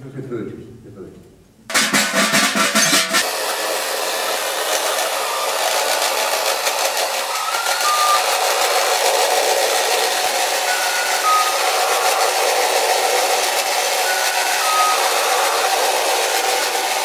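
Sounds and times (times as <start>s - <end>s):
toy jet engine hiss and whir: 1.8s - 17.0s
short high beeps: 7.3s - 9.4s, 10.6s - 13.3s, 14.0s - 15.8s.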